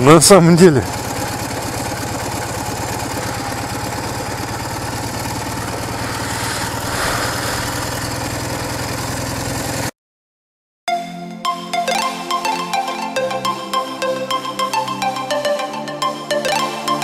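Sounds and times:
motorcycle engine idling low: 0:00.0 - 0:09.9.

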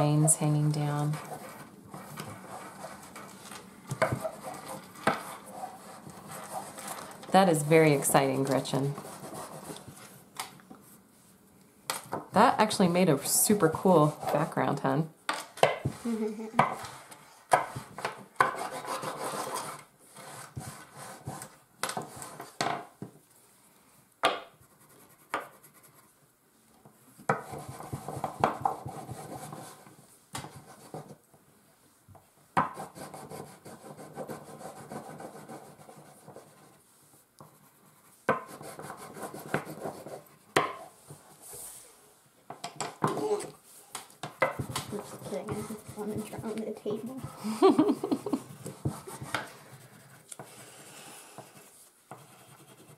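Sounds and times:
crayons scribbling on paper: 0:00.0 - 0:03.4, 0:04.0 - 0:10.2, 0:12.4 - 0:14.9, 0:15.8 - 0:22.6, 0:27.3 - 0:31.2, 0:32.7 - 0:36.8, 0:37.4 - 0:40.6, 0:44.4 - 0:52.9
crayon tapping on table: 0:27.3 - 0:29.6, 0:44.2 - 0:46.6.

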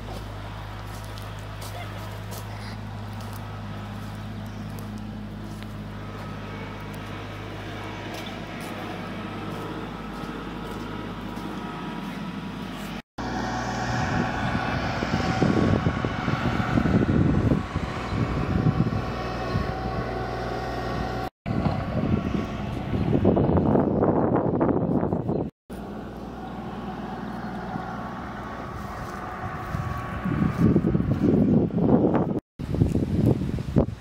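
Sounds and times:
low engine drone: 0:00.0 - 0:32.4
wind buffeting microphone: 0:13.2 - 0:25.5, 0:26.4 - 0:34.0.

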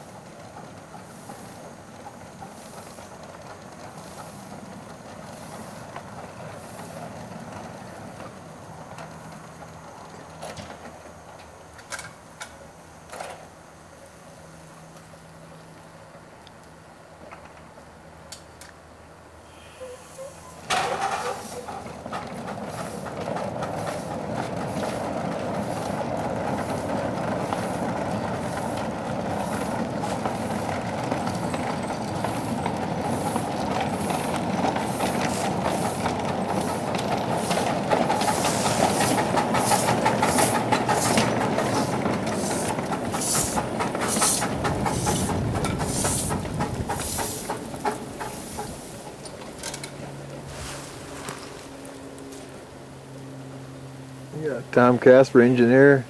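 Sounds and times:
steam locomotive hissing: 0:00.0 - 0:08.9, 0:19.4 - 0:52.8
rhythmic steam exhaust beats: 0:00.0 - 0:10.5, 0:19.5 - 0:56.0
steam burst: 0:33.1 - 0:49.2.

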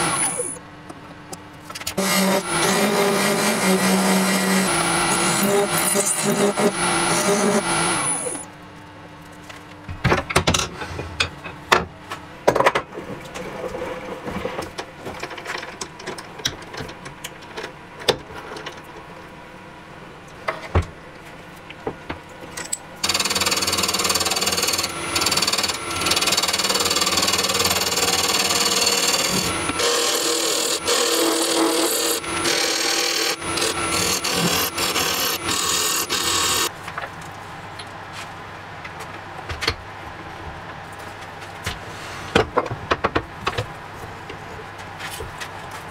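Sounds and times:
lathe tool scraping wood: 0:02.0 - 0:08.4, 0:23.0 - 0:36.7.

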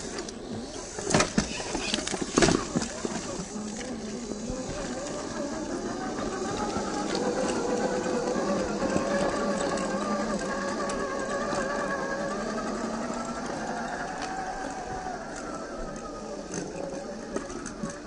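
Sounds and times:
electric motor and gears whining: 0:00.0 - 0:18.0.

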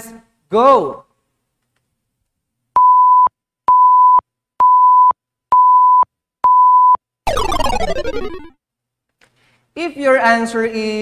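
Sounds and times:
electronic countdown beeps: 0:02.8 - 0:08.5
falling sweep of tones: 0:07.3 - 0:08.5.

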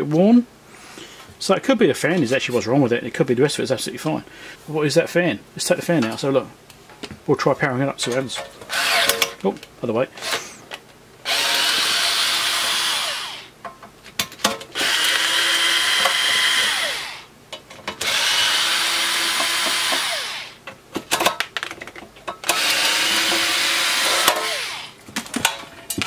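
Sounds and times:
electric screwdriver running: 0:08.7 - 0:09.2, 0:11.3 - 0:13.5, 0:14.8 - 0:17.3, 0:18.0 - 0:20.6, 0:22.5 - 0:25.0.

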